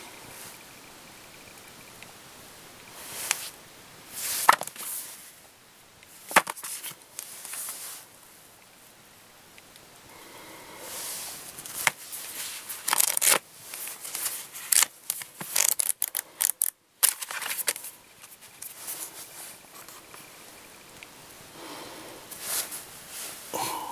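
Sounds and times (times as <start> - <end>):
booklets sliding on table: 4.2 - 5.1
paper rustling and page flipping: 4.2 - 5.3, 6.2 - 8.1, 11.3 - 20.3.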